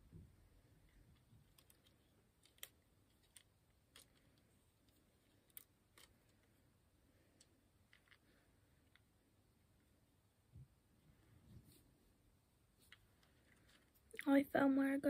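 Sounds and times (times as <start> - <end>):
plastic toy pieces clicking: 1.1 - 6.5.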